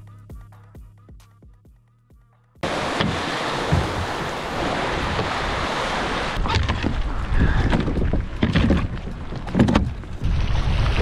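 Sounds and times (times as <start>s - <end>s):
paddle splashes and knocks: 2.6s - 11.0s
wind buffeting microphone: 3.6s - 11.0s.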